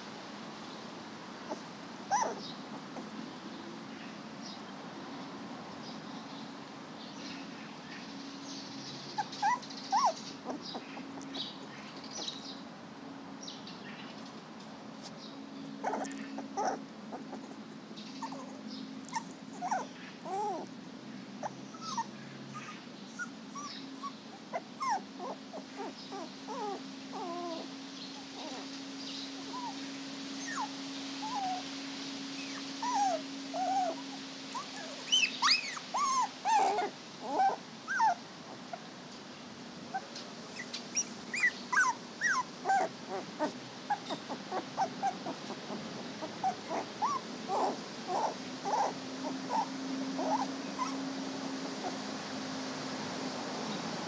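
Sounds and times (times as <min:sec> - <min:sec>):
puppies whimpering: 0:01.5 - 0:03.2, 0:09.1 - 0:11.5, 0:15.8 - 0:20.7, 0:21.4 - 0:28.8, 0:29.4 - 0:38.8, 0:39.9 - 0:51.2.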